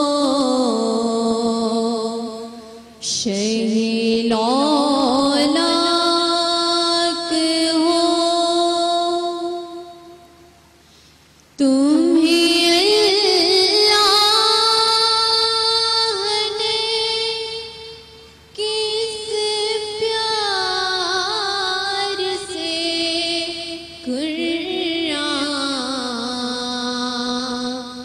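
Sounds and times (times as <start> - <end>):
girl taking a breath: 10.8 - 11.4
girl singing solo: 18.6 - 27.9.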